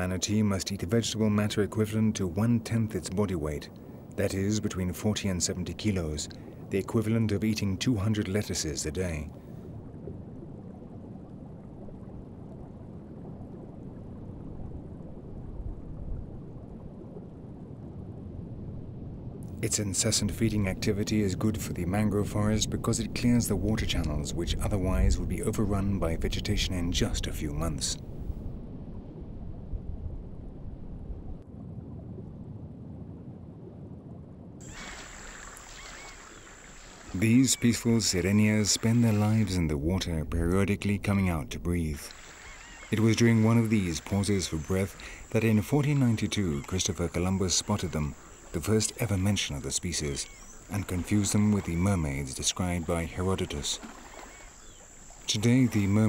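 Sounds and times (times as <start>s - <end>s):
underwater rumble: 0.8s - 56.0s
surface water sound: 34.6s - 40.1s.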